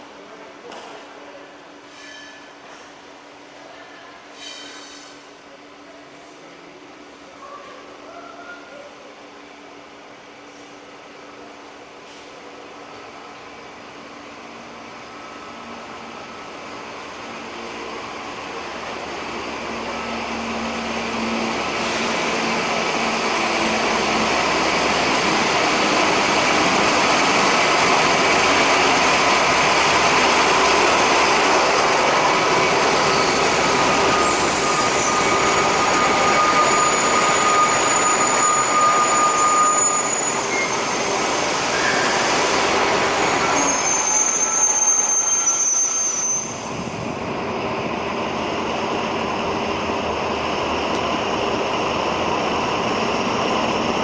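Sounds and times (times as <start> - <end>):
squealing train brakes: 1.8 - 2.9, 4.2 - 5.3, 19.4 - 25.8, 30.4 - 46.9
diesel locomotive engines: 2.6 - 54.0
train wheels on rails: 11.5 - 54.0.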